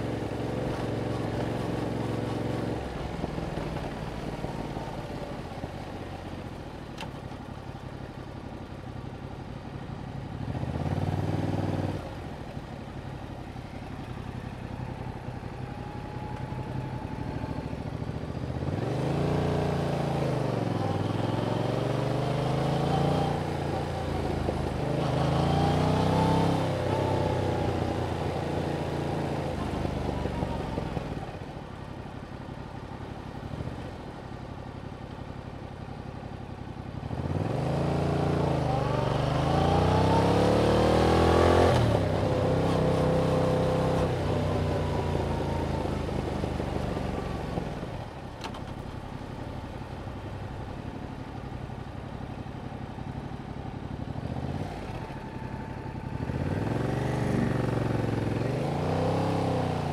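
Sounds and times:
motorcycle engine revving: 16.2s - 31.2s, 37.0s - 48.0s, 53.9s - 59.9s.

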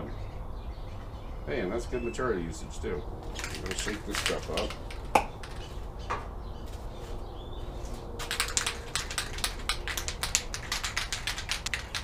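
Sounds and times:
aerosol can rattling when shaken: 3.3s - 5.8s, 8.2s - 12.0s.

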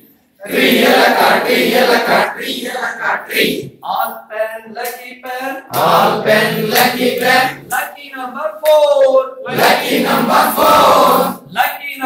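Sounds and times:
group of adults chanting: 0.4s - 3.7s, 5.7s - 7.7s, 9.5s - 11.4s.

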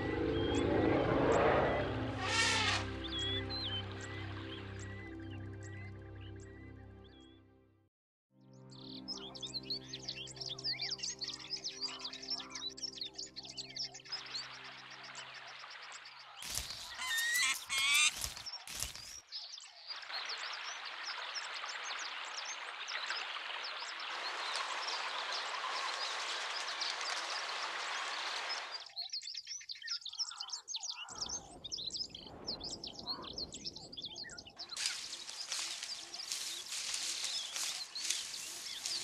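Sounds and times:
low rumble: 0.0s - 4.4s
flock of birds chirping: 0.0s - 7.3s, 8.8s - 39.0s
wings flapping: 16.4s - 19.2s, 34.8s - 39.0s.

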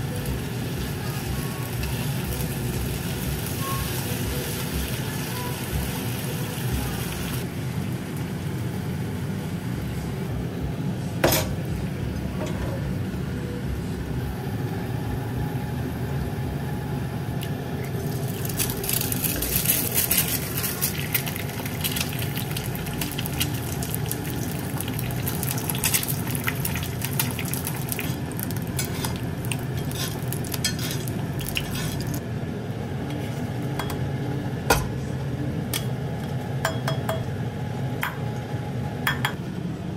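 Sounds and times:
egg sizzling in skillet: 17.8s - 32.2s
metal utensils clinking on pans: 18.5s - 23.7s, 24.8s - 32.2s.

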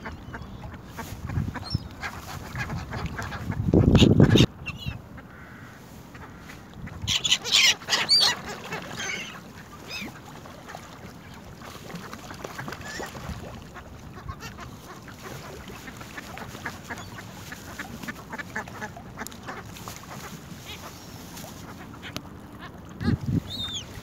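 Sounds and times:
gull cries: 7.1s - 10.2s.

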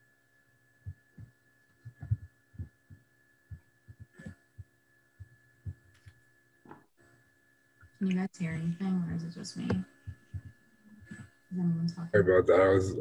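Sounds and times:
steady electronic hum: 0.0s - 13.0s
short low thumps: 0.9s - 5.9s.

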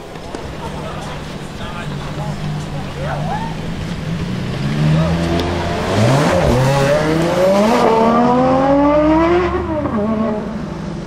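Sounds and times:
car engine accelerating in tunnel: 0.6s - 11.0s.

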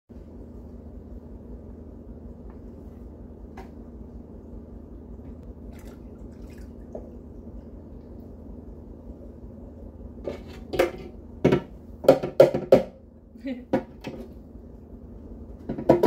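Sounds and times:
steady low hum: 0.1s - 16.0s
water splashes: 5.7s - 7.2s
water trickling and dripping: 5.7s - 8.2s.

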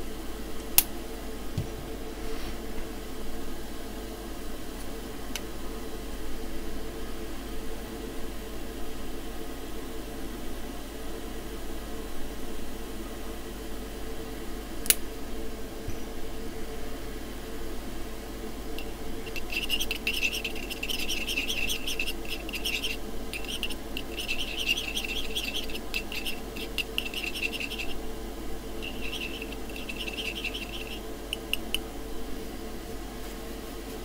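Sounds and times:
steady hum: 0.0s - 34.0s
metal rod scraping in metal cup: 18.8s - 28.0s, 28.8s - 31.7s.

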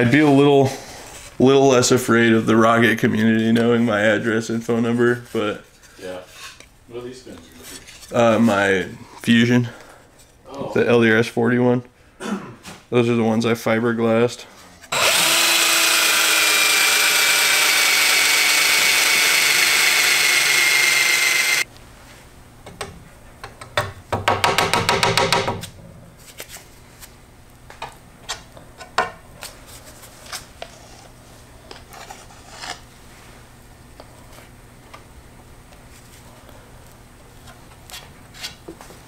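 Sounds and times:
cordless drill whining: 14.9s - 21.7s.

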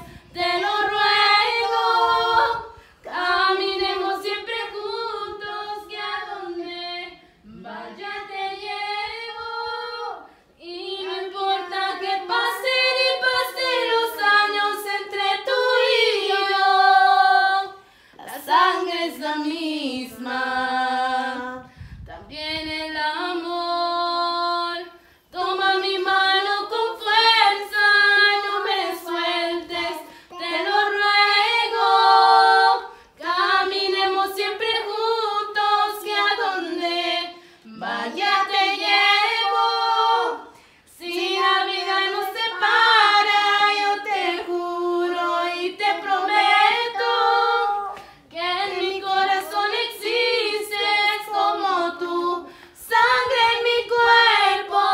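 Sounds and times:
woman singing unaccompanied: 0.0s - 40.4s.

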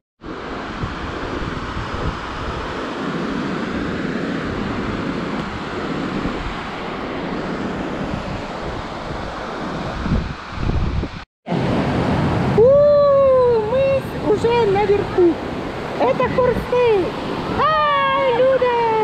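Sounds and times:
wind buffeting microphone: 0.2s - 19.0s
waterfall rushing: 11.5s - 19.0s.

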